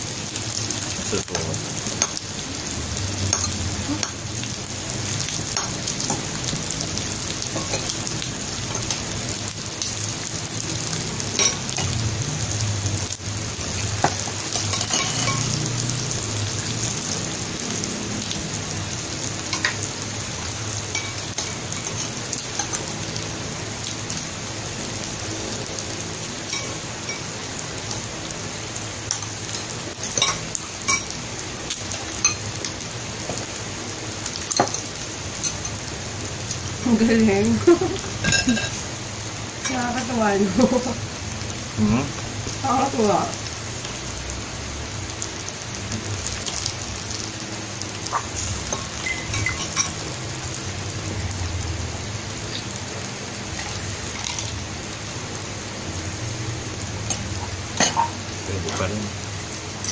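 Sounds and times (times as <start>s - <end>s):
meat sizzling on a grill plate: 0.0s - 59.9s
cutlery clicking against bowls: 3.3s - 4.2s, 11.4s - 12.0s, 14.0s - 15.6s, 20.9s - 22.8s, 29.1s - 31.1s, 48.1s - 50.0s, 57.1s - 58.1s.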